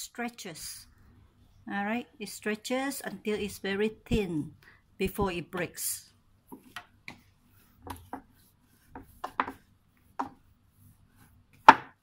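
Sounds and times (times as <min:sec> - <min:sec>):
dough kneaded on wooden board: 0:06.4 - 0:12.0.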